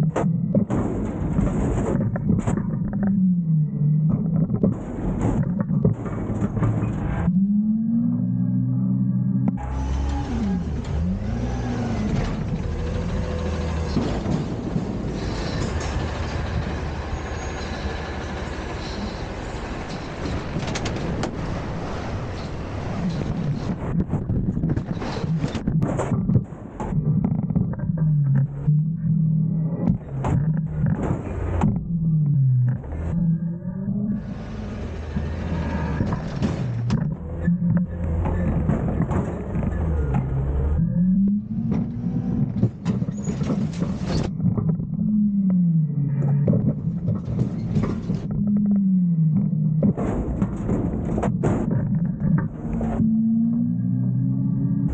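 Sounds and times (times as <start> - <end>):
garbage truck engine running: 0.0 - 54.9
trash falling with clatter: 0.1 - 3.0, 13.4 - 16.2, 29.9 - 31.7, 38.1 - 40.3, 41.7 - 44.8, 46.3 - 48.3, 49.8 - 53.0.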